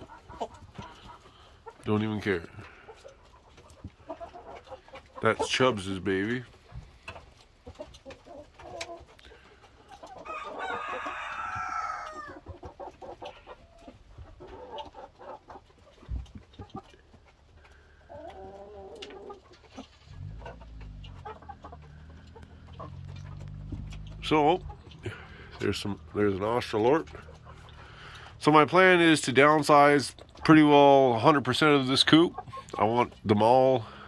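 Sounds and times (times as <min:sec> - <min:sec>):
roosters clucking: 0:00.0 - 0:34.0
rooster crowing loudly: 0:10.2 - 0:12.4.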